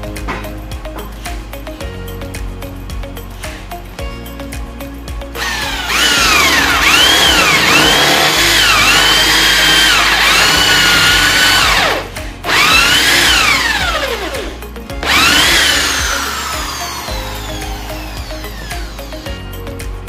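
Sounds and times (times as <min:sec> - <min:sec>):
power tool motor whining: 0:05.4 - 0:19.3.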